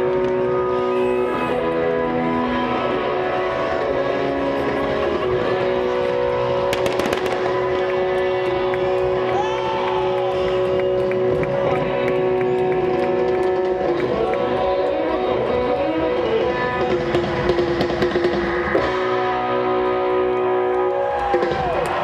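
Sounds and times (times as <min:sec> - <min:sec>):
amplified live music: 0:00.0 - 0:22.0
fireworks crackling and banging: 0:04.7 - 0:09.4.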